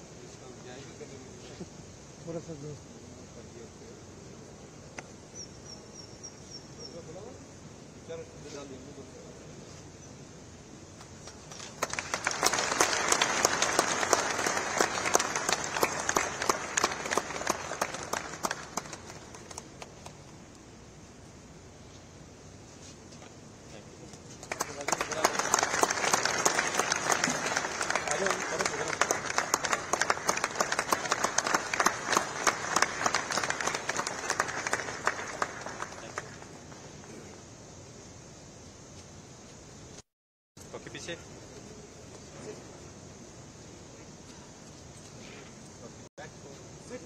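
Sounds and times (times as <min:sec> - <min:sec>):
people applauding: 0:11.0 - 0:20.4, 0:24.2 - 0:37.1.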